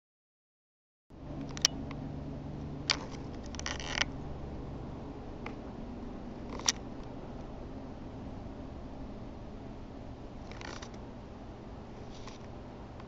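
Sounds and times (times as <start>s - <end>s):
steady low hum: 1.1s - 13.0s
camera handling rattle: 2.9s - 4.1s, 6.4s - 6.8s, 10.4s - 11.0s.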